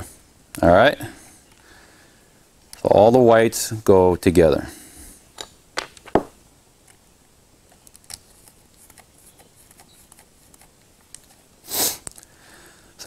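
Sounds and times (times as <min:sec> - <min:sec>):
wire handling clicks and rustles: 0:07.6 - 0:12.4.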